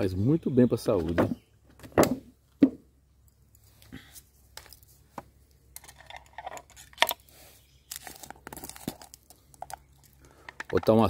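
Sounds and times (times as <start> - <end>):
plastic bag crinkling and tearing: 7.9 - 9.3.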